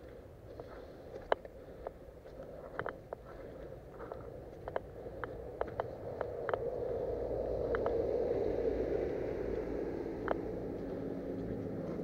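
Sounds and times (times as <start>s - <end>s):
footsteps through wet grass and mud: 0.0s - 6.3s, 10.4s - 12.0s.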